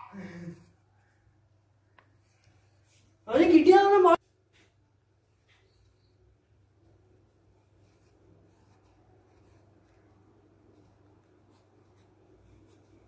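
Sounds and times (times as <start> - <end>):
pencil scratching on paper: 7.2 - 13.0.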